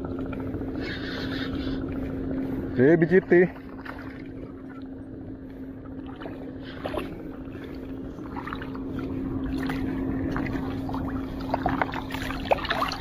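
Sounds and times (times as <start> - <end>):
sea water sloshing: 0.0 - 13.0
steady low hum: 0.0 - 13.0.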